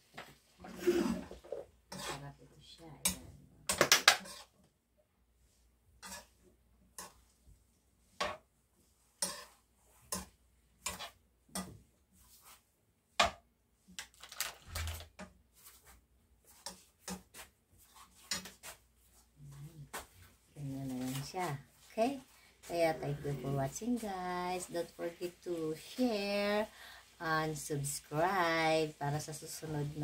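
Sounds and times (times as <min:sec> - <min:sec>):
spoon scraping frying pan: 0:00.7 - 0:02.4, 0:03.0 - 0:04.6, 0:06.0 - 0:07.4, 0:08.0 - 0:12.6, 0:14.8 - 0:20.2.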